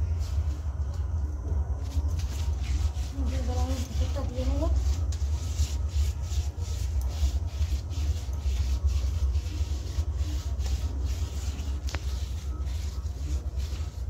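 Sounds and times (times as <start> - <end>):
steady low hum: 0.0 - 14.0
hand rubbing wet mud: 2.1 - 14.0.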